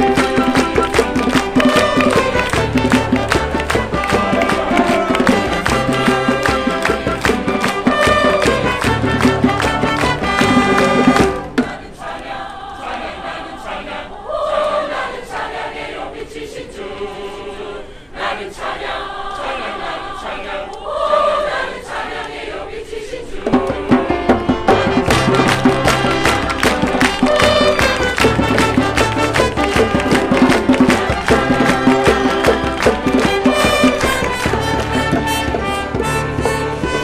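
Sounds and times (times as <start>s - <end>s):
large choir singing: 0.0s - 37.0s
string ensemble: 0.0s - 37.0s
steady loud beat: 23.6s - 37.0s.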